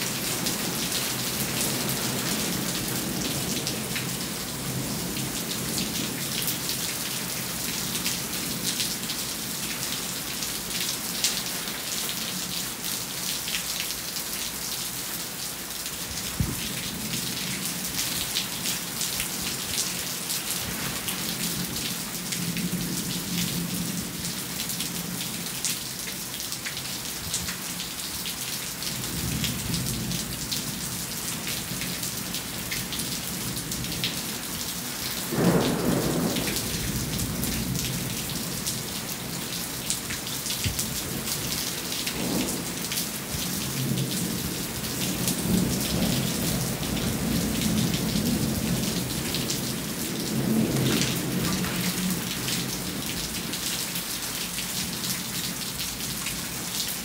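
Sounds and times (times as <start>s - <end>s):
rain drops spattering: 0.0s - 57.0s
thunder clap and rumbles: 35.3s - 38.4s.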